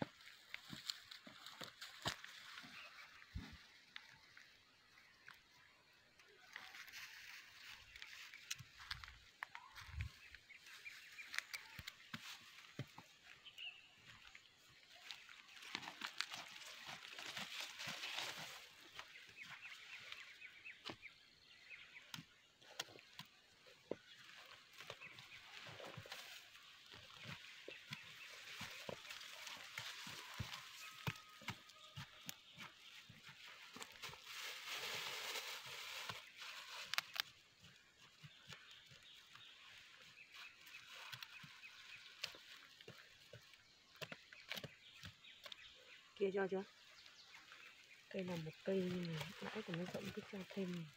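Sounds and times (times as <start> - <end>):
faint bird chirping: 2.4 - 50.9.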